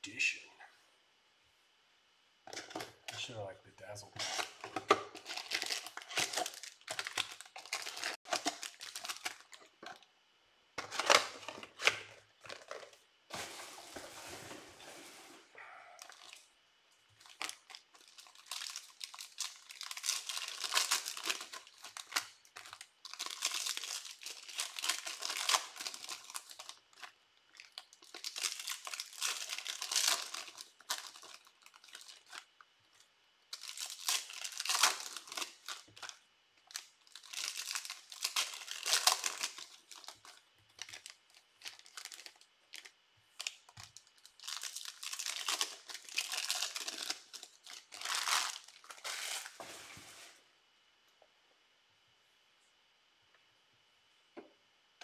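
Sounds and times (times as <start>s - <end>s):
card wrappers tearing and crinkling: 4.1s - 10.0s, 10.8s - 15.2s, 16.0s - 16.4s, 17.2s - 32.5s, 33.5s - 49.6s.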